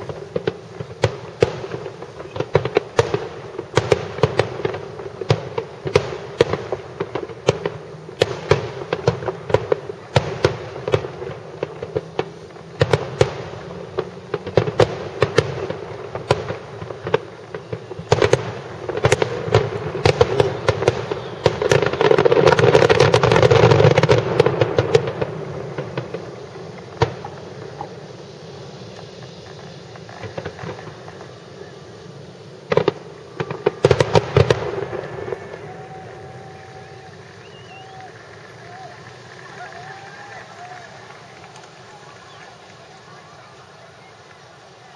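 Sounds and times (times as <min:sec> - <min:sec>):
firework crackle: 0:00.0 - 0:44.9
firework shells bursting: 0:00.0 - 0:44.9.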